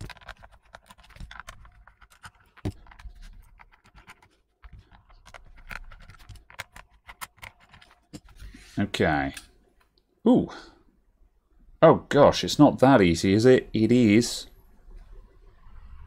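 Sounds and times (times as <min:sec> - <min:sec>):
screwdriver clicking and scratching: 0:00.0 - 0:08.4.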